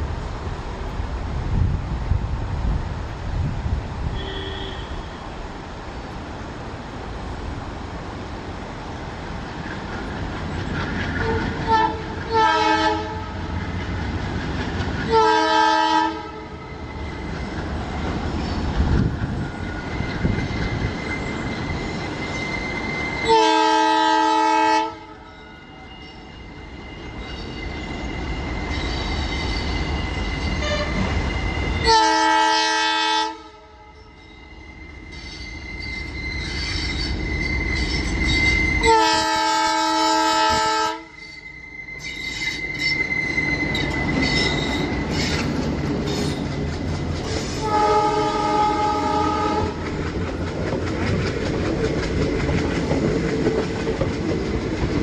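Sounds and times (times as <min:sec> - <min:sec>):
locomotive horn blasts: 0:04.1 - 0:05.3, 0:11.2 - 0:13.5, 0:15.1 - 0:16.6, 0:23.2 - 0:25.3, 0:30.6 - 0:31.2, 0:31.8 - 0:34.2, 0:38.3 - 0:41.4, 0:47.6 - 0:49.8
wheel squeal: 0:19.4 - 0:23.3, 0:25.3 - 0:31.9, 0:34.0 - 0:39.0, 0:41.1 - 0:46.6.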